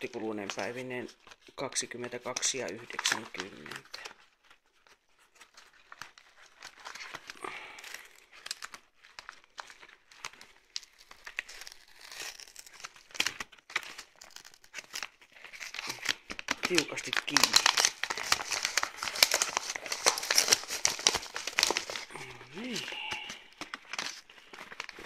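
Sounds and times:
envelope crinkling and tearing: 0.0 - 25.0.

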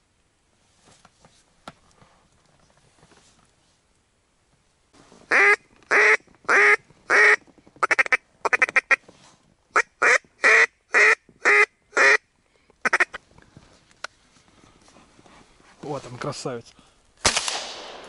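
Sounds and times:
duck chattering notes: 12.8 - 13.2
duck quacking: 12.8 - 13.2.

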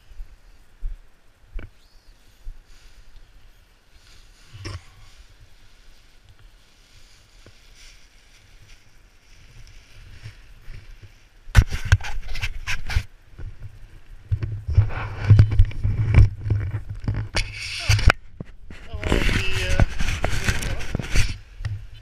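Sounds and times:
faint rustle: 0.0 - 22.0
hand scraping against microphone: 6.6 - 13.1, 14.3 - 22.0.

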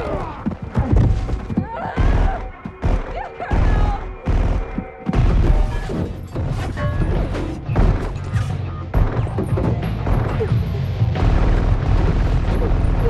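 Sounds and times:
action music: 0.9 - 13.0
punch and body impact thuds: 2.0 - 6.2.

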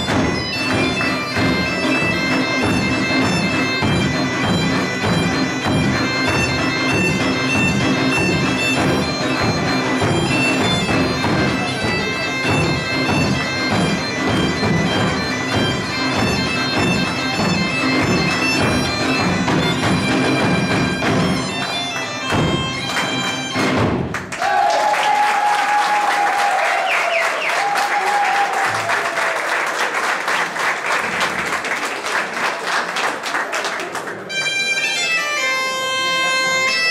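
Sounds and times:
bagpipe tune with drone: 0.0 - 23.8, 34.3 - 36.9
audience applause: 24.1 - 34.3.

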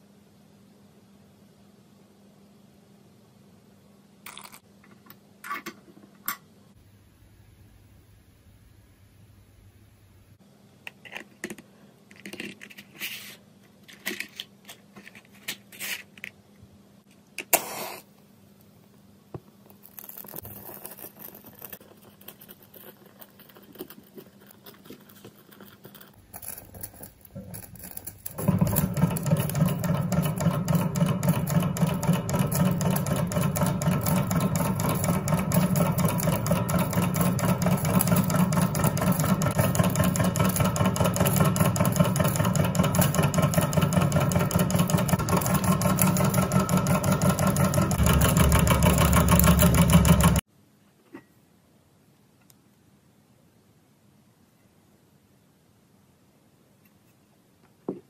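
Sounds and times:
engine mechanical clatter: 27.8 - 50.4.

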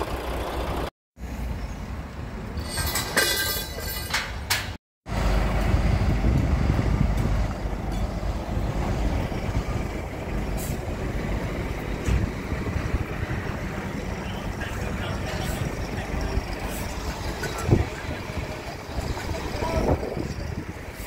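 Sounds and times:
heavy machinery rumbling: 5.1 - 21.0.

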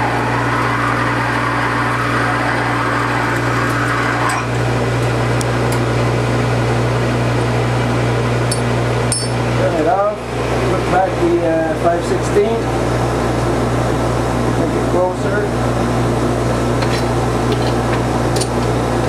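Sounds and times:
drill cutting metal: 0.0 - 5.0
lathe humming: 0.0 - 19.0.

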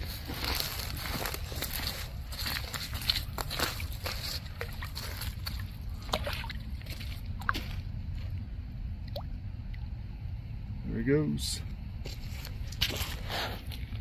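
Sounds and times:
water splash and slosh: 0.2 - 8.3.

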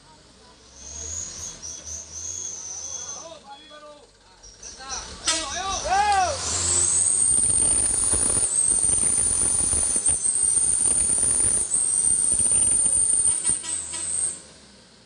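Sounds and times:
diesel truck engine under load: 0.0 - 15.0
steady high whine: 6.7 - 13.6.

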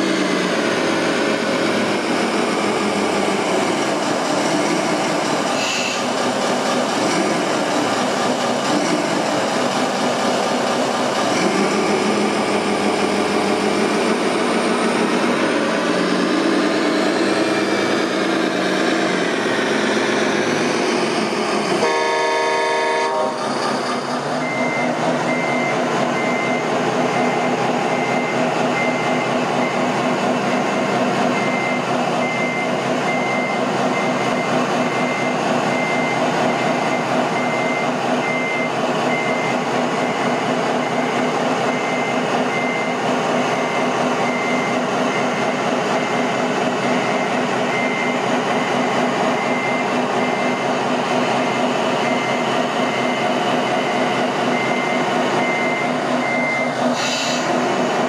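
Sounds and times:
diesel engine sound: 0.0 - 58.0
reversing beeper: 11.4 - 57.5.

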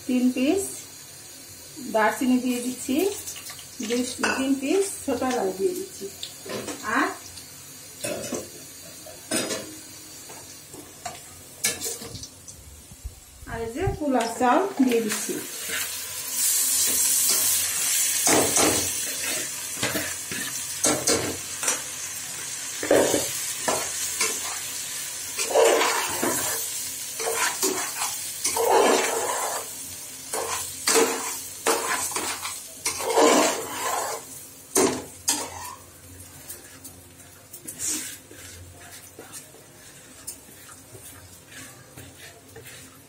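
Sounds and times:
rice hissing in hot oil: 0.0 - 10.8, 14.8 - 34.9, 35.5 - 43.0
light sizzle: 0.0 - 43.0
ladle scraping a metal pot: 32.9 - 34.3.

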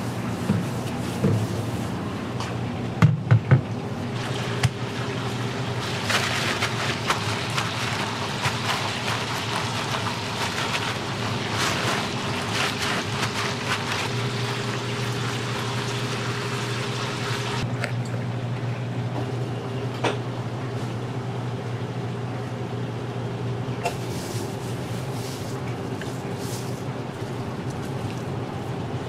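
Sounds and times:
paper towel rustling: 0.0 - 2.0, 5.2 - 15.6, 23.9 - 28.8.

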